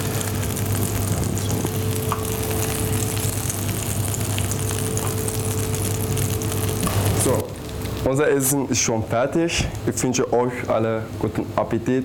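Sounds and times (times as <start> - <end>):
low hum: 0.0 - 8.1
oil sizzling in frying pan: 0.0 - 8.1.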